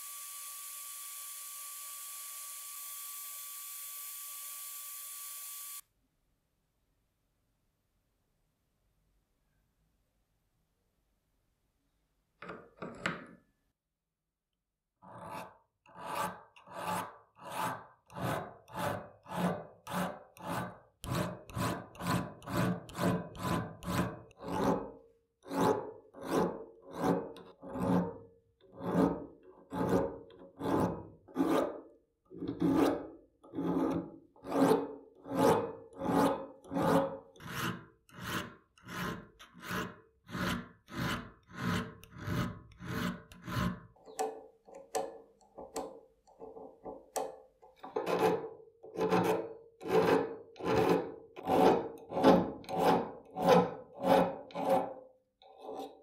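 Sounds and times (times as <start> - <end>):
hand file rasping on metal: 15.0 - 56.0.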